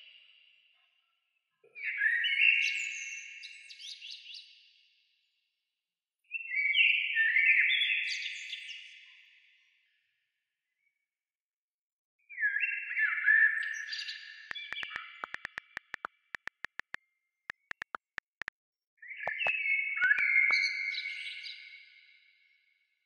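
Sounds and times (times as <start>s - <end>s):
sharp clicks: 14.5s - 18.5s, 19.3s - 19.5s
electronic bleeping tones: 19.3s - 19.5s.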